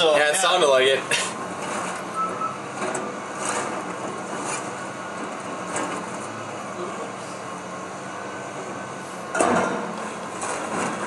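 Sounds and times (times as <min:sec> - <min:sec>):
excavator diesel engine running: 0:00.0 - 0:11.0.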